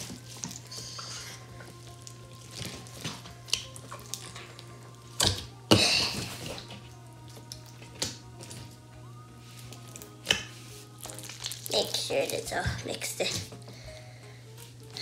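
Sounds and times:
slime squelching and popping: 0.0 - 6.7, 9.6 - 13.6.

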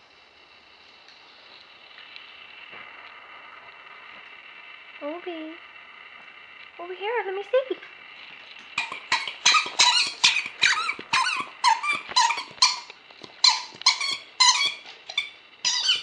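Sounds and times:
rubber squeaker toy squeaking: 8.8 - 16.0.

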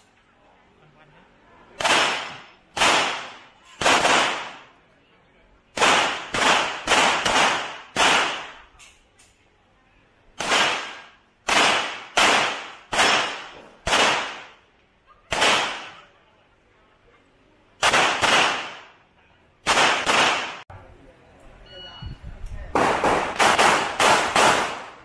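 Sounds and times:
handgun shots with echo: 10.4 - 14.5, 17.8 - 18.9, 19.7 - 20.6, 22.8 - 25.0.

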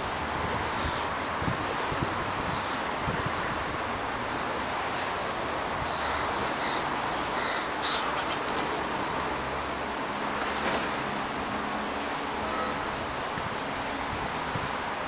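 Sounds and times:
crow raspy calls: 5.9 - 8.3.

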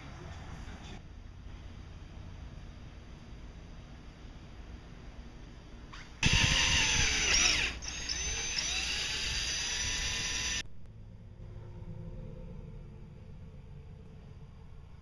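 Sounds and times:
cordless drill boring: 6.0 - 10.6.

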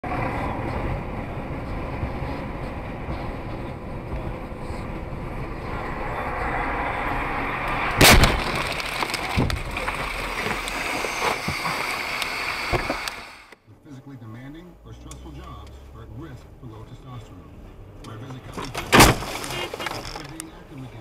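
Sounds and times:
car road and engine noise: 0.0 - 21.0
loud collision bang: 5.8 - 9.6, 18.9 - 19.7.

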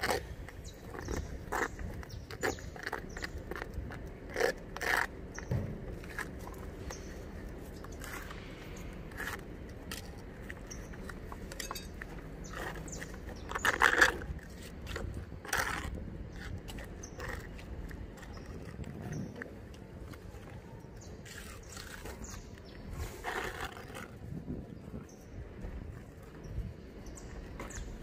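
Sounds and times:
spatula scraping filler paste: 0.0 - 19.3.

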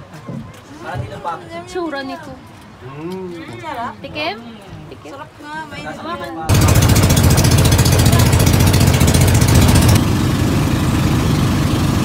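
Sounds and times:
boat engine running: 6.5 - 12.0.

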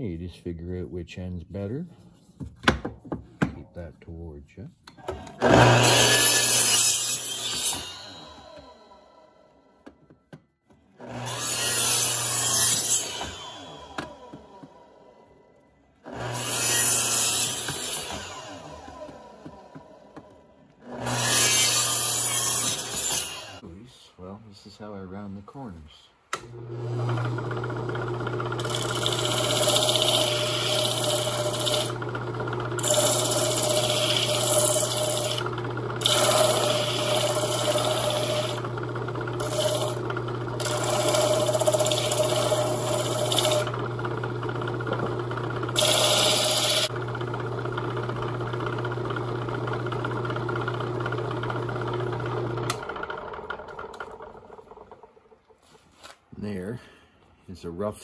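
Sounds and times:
sanding machine motor hum: 26.5 - 55.3.

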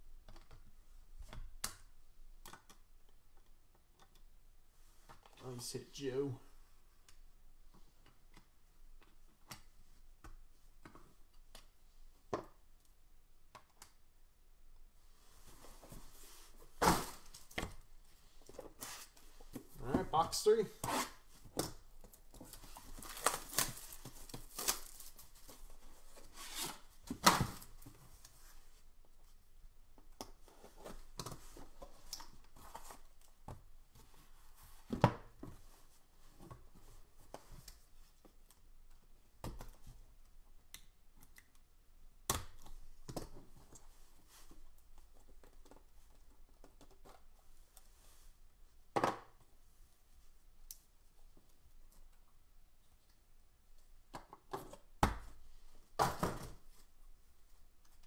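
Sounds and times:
shrink wrap tearing: 23.0 - 25.2.

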